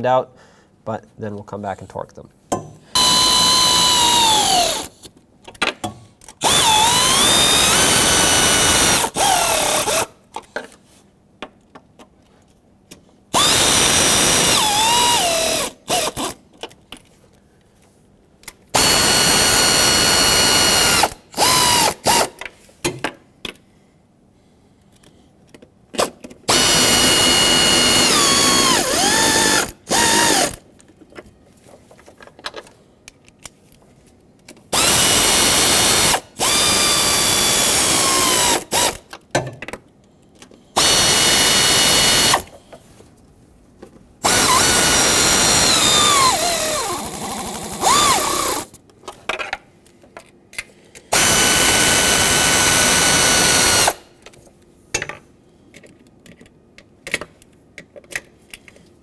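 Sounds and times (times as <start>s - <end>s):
power tool motor whining: 3.0s - 4.9s, 6.4s - 10.1s, 13.4s - 16.4s, 18.8s - 22.3s, 26.5s - 30.6s, 34.8s - 39.0s, 40.8s - 42.5s, 44.2s - 48.7s, 51.1s - 54.0s.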